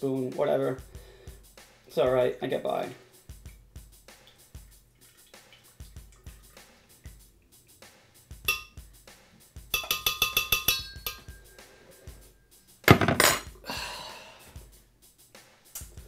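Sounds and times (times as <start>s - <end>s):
background music with drum beat: 0.0s - 16.0s
spoon clinking against glass: 8.5s - 8.8s, 9.7s - 11.6s.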